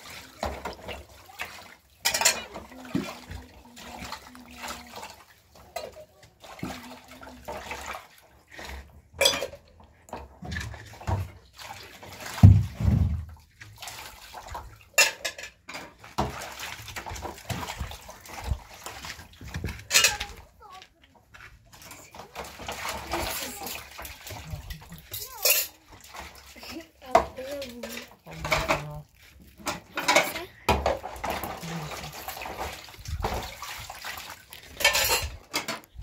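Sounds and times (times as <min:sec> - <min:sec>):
water splashing: 0:00.0 - 0:36.0
dishes and pots clinking: 0:02.0 - 0:03.1, 0:09.1 - 0:11.3, 0:14.9 - 0:16.4, 0:19.6 - 0:20.4, 0:21.9 - 0:26.4, 0:27.1 - 0:33.4, 0:34.7 - 0:36.0.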